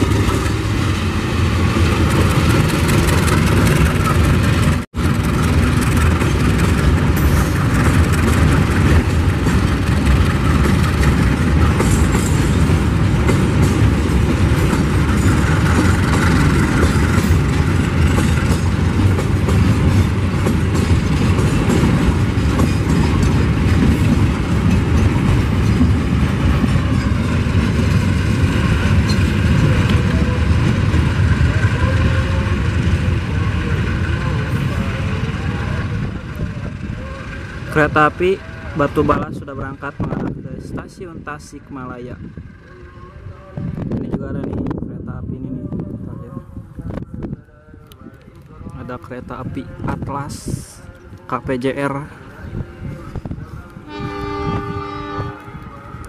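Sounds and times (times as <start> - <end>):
train wheels on rails: 0.0 - 44.8.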